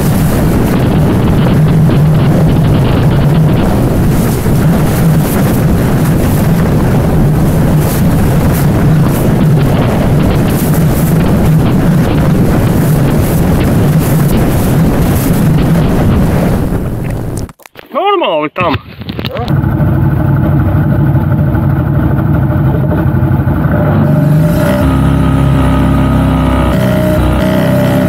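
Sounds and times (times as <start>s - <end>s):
wind buffeting microphone: 0.0s - 17.6s
engine running under load: 19.5s - 28.0s.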